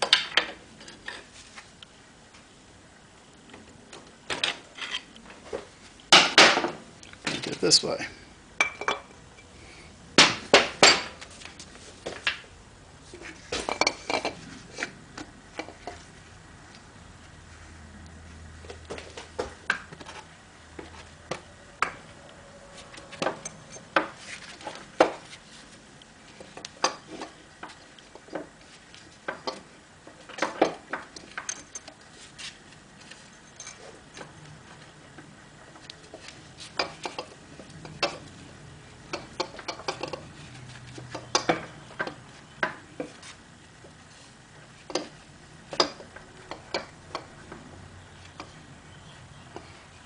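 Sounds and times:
metal parts and tools clinking: 22.8 - 24.8, 30.4 - 31.9, 33.2 - 34.3.

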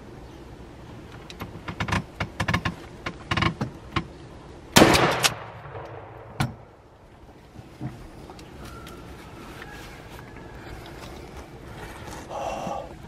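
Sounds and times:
shotgun blast: 4.8 - 6.8.

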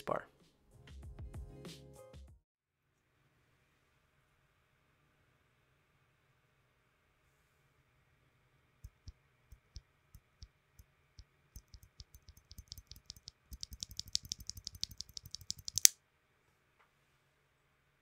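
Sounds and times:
key switch clicking: 11.6 - 15.9.

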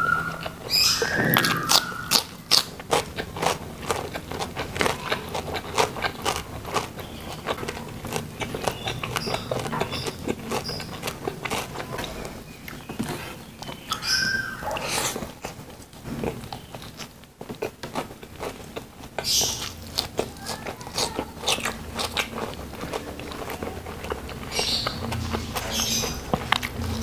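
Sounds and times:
crunchy chewing of vegetables: 0.0 - 27.0
high whine: 0.9 - 2.4.

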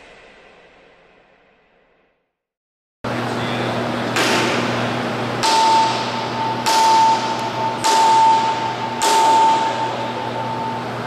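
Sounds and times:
low hum: 4.0 - 11.0
sledgehammer striking steel: 4.2 - 4.8, 5.4 - 10.2.

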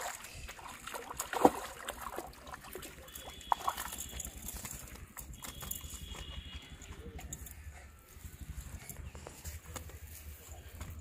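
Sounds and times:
fish splashing in water: 0.0 - 6.2.

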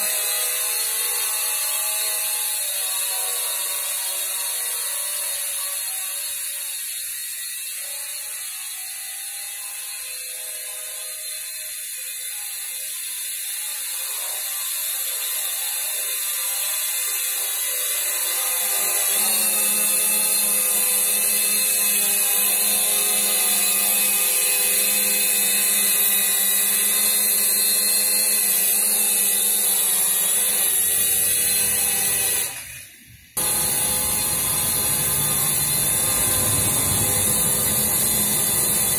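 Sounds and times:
drone propellers whirring: 32.4 - 38.9.

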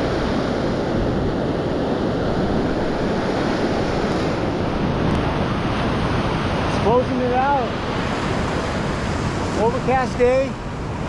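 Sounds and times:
ocean surf breaking on sand: 0.0 - 11.0.

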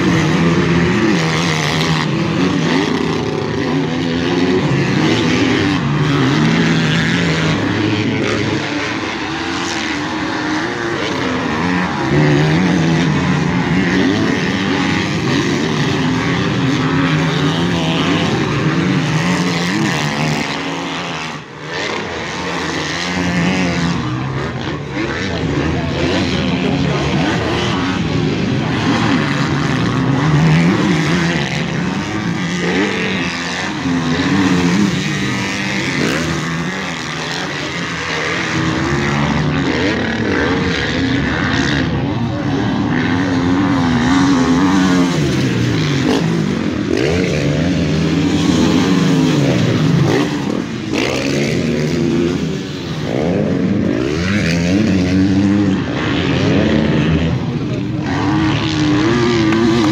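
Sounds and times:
motocross bike engines revving: 0.0 - 59.9.

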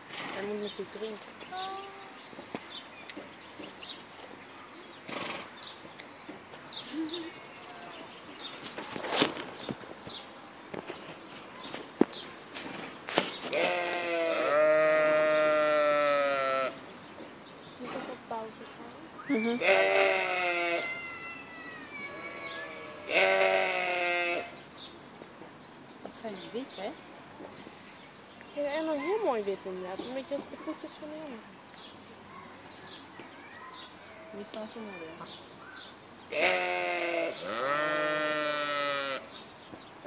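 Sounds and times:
small birds chirping: 0.3 - 13.8, 14.5 - 40.0
rustling: 7.6 - 13.8
sheep bleating: 13.5 - 16.8, 19.5 - 24.6, 36.3 - 39.2.

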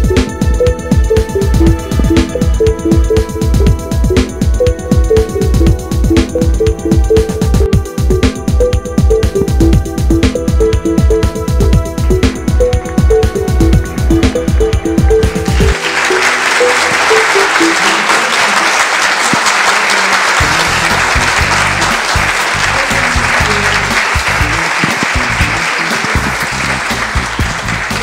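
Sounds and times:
background music: 0.0 - 19.1, 20.3 - 28.0
audience applauding: 14.2 - 28.0.

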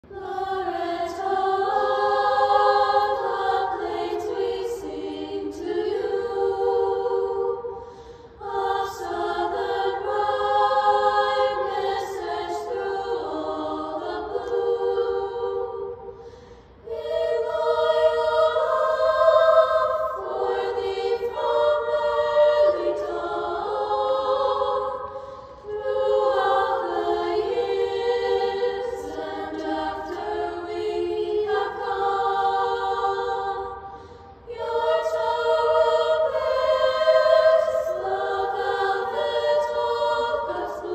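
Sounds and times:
girls' choir singing unaccompanied: 0.0 - 40.9.

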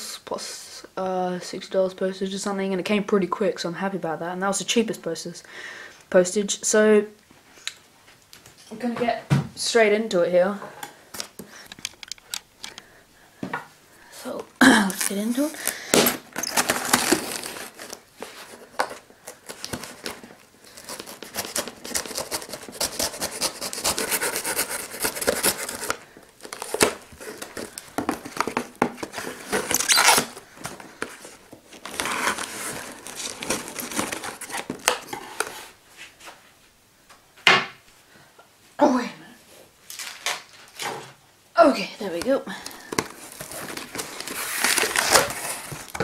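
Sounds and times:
tape tearing and crackling: 14.6 - 35.6, 39.9 - 41.0, 42.9 - 46.0
knife cutting packing tape: 14.9 - 18.0, 19.5 - 28.7, 29.4 - 30.4
cardboard box rustling and scraping: 16.1 - 18.6, 20.8 - 35.8, 43.0 - 46.0.

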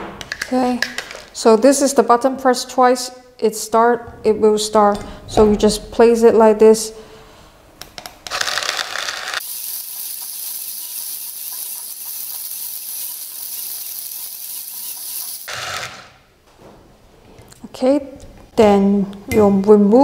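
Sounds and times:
electric coffee grinder whirring: 8.3 - 16.2.

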